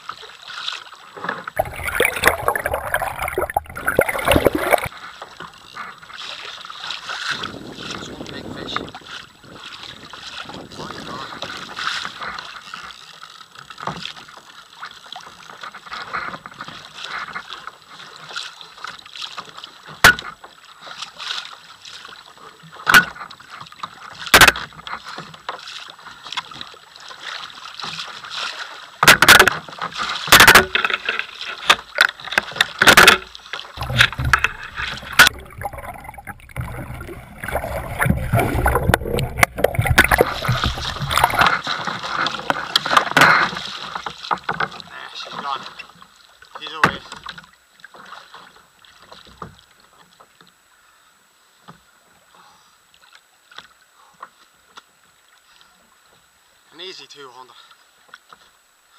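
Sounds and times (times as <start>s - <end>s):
water slapping against kayak hull: 0.0s - 50.4s
wind rumble on microphone: 7.3s - 11.6s.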